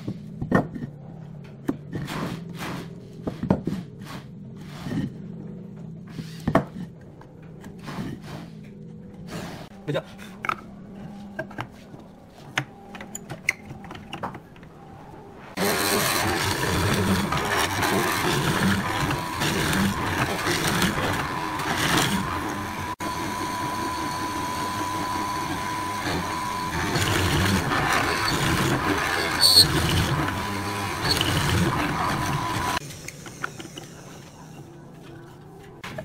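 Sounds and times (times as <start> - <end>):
mortiser whining while boring wood: 15.5 - 34.7.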